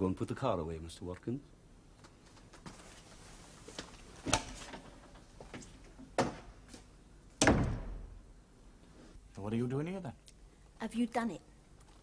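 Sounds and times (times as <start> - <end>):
door shutting with heavy thud: 7.4 - 8.2.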